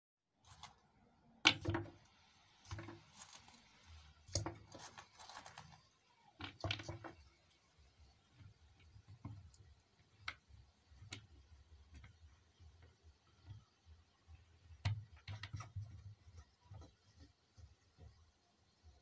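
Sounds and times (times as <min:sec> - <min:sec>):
plastic rustling: 0:02.7 - 0:07.2.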